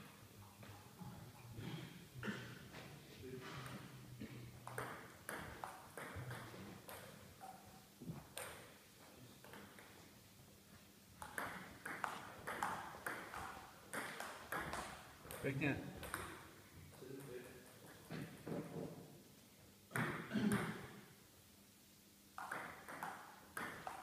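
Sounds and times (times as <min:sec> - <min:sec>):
table tennis ball clicking: 0:22.4 - 0:24.0.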